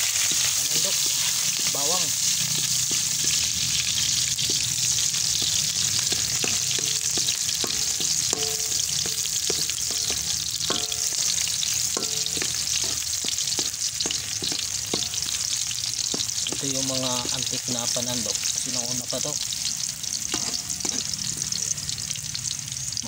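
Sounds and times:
ladle scraping a wok: 0.0s - 16.7s
garlic sizzling in oil: 0.0s - 23.0s.

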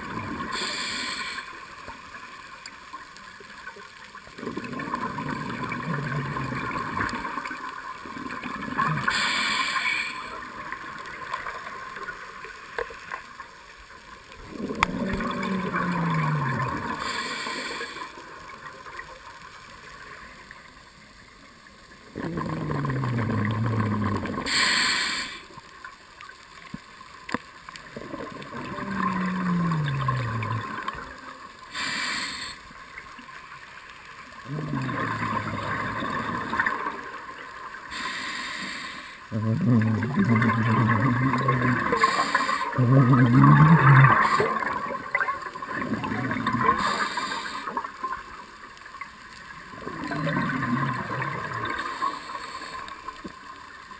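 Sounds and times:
regulator inhalation hiss: 0.5s - 1.7s, 9.1s - 10.4s, 17.0s - 18.2s, 24.4s - 25.6s, 31.7s - 32.7s, 37.9s - 39.3s, 41.9s - 42.8s, 46.8s - 47.9s
bubbling exhalation underwater: 4.4s - 9.3s, 14.4s - 17.2s, 22.0s - 24.6s, 27.9s - 31.3s, 34.4s - 37.2s, 39.3s - 47.9s, 49.6s - 52.1s.

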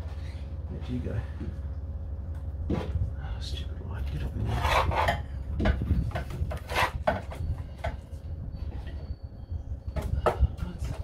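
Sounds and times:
metal scraping in wheel well: 4.4s - 5.3s, 6.5s - 7.5s.

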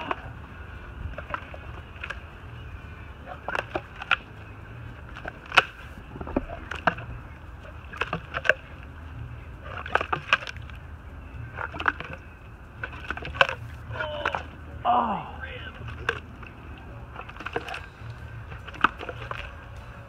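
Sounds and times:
crocodile crunching bones: 0.0s - 0.4s, 1.1s - 2.3s, 3.3s - 8.9s, 9.6s - 10.8s, 11.4s - 14.5s, 15.7s - 20.0s.

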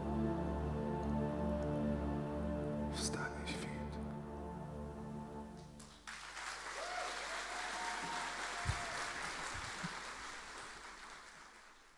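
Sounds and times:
audience applause: 5.8s - 11.9s
crowd cheering: 6.1s - 11.9s.

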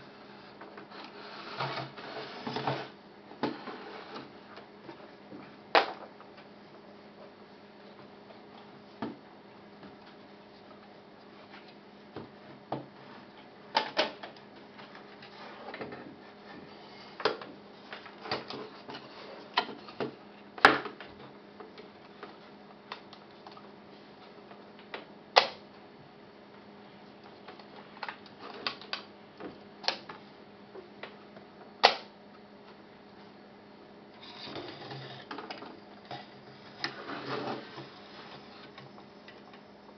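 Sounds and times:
sharp snaps: 31.8s - 32.1s.

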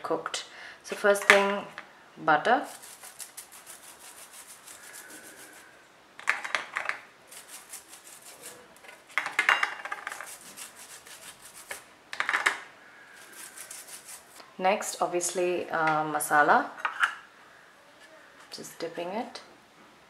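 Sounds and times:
lemon rubbing over corn cob: 2.6s - 5.8s, 7.3s - 9.2s, 9.9s - 11.9s, 13.1s - 14.4s.

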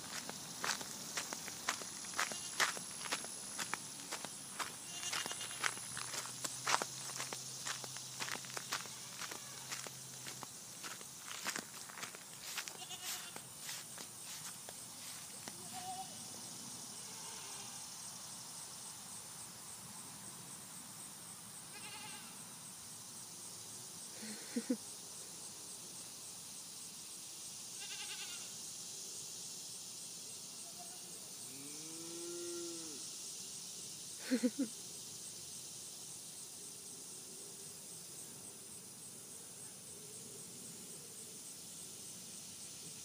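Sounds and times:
goats bleating: 2.2s - 2.6s, 4.8s - 5.8s, 12.7s - 13.4s.

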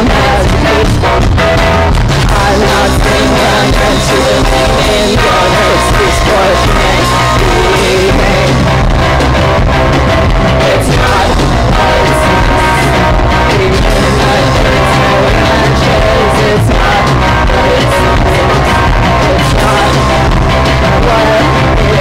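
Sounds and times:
rock band playing live: 0.0s - 22.0s
woman singing: 2.2s - 8.7s.

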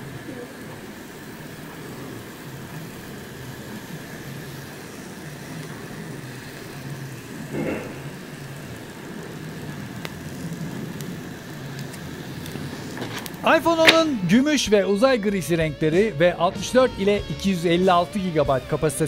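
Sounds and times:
plastic film peeling crackle: 1.6s - 14.6s.

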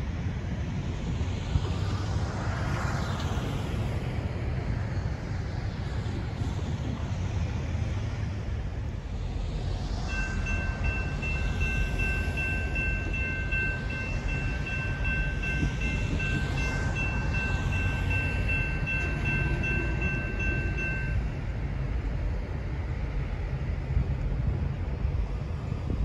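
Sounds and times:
diesel locomotive rumbling: 0.0s - 26.0s
bell ringing: 10.1s - 21.4s.

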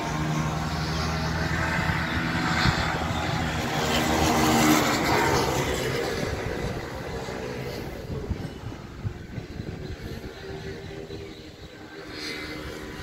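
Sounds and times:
racing motorcycles passing: 0.0s - 13.0s.

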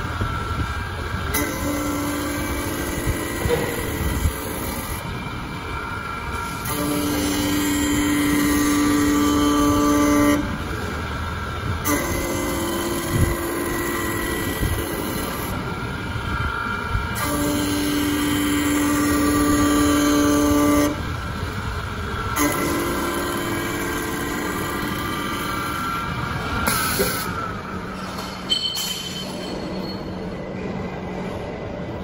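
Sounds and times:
high whine of spinning cutters: 0.0s - 30.8s
wood lathe running: 6.6s - 10.8s, 17.2s - 26.0s.

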